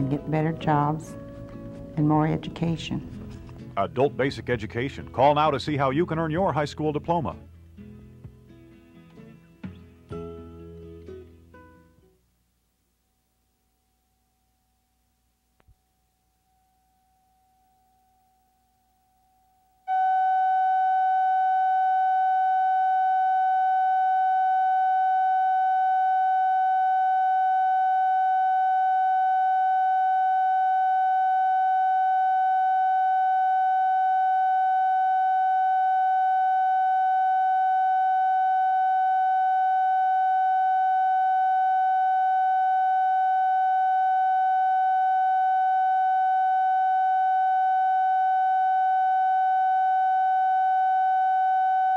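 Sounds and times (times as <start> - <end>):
steady test tone: 0.0 - 6.6, 19.3 - 51.9.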